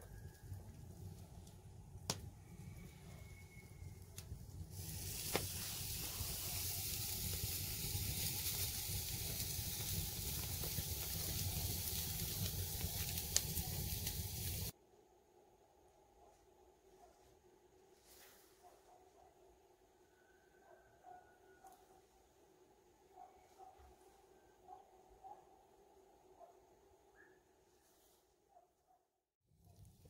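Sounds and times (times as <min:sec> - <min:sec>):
burning wood crackling: 0:00.0 - 0:14.7
meat sizzling on grill: 0:04.4 - 0:14.7.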